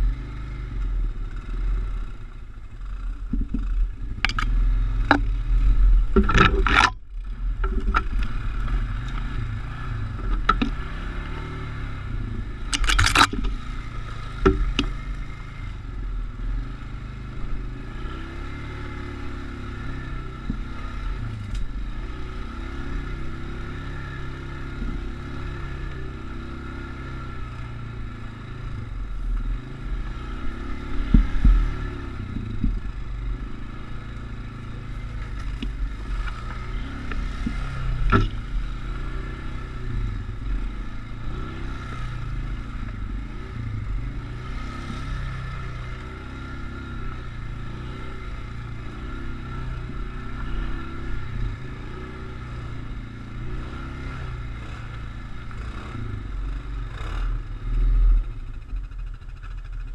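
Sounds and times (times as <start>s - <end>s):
off-road vehicle engine revving: 0.0s - 59.9s
knocks and scrapes: 3.3s - 7.0s, 7.6s - 8.8s, 12.7s - 13.6s.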